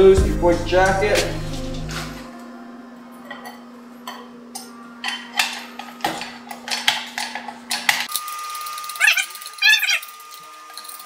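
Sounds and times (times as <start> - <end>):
steady low hum: 0.0 - 3.2.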